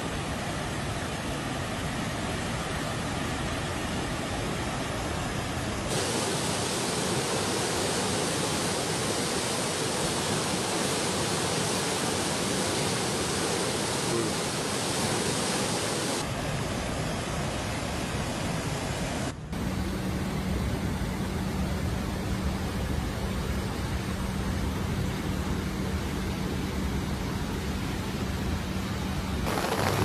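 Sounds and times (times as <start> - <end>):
water rushing over spillway: 0.0 - 19.4, 29.4 - 30.0.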